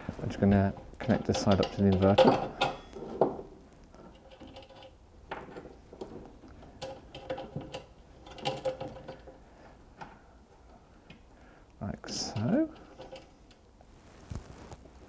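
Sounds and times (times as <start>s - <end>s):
faint clicks and scrapes of hands: 12.4s - 15.0s.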